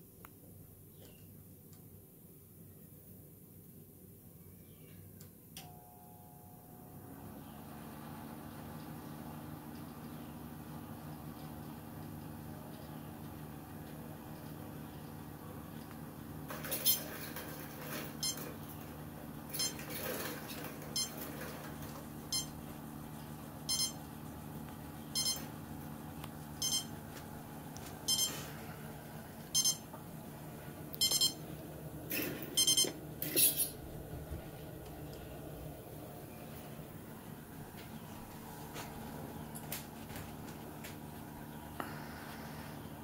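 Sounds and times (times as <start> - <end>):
steady low hum: 8.2 - 43.0.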